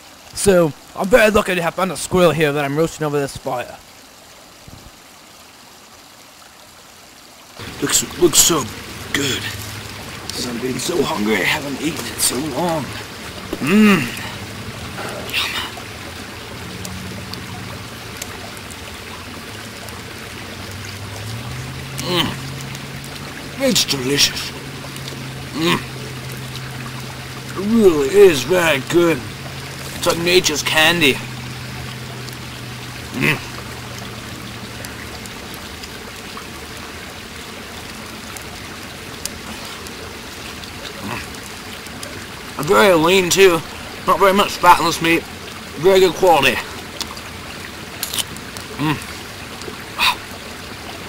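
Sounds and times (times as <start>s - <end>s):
campfire crackling: 0.0s - 51.0s
fire popping: 47.9s - 49.0s.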